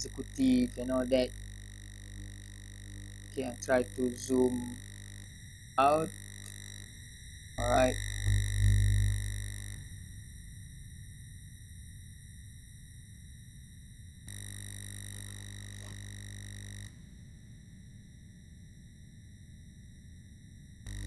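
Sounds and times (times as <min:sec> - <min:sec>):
electronic whine: 0:00.0 - 0:21.0
low buzz: 0:00.0 - 0:21.0.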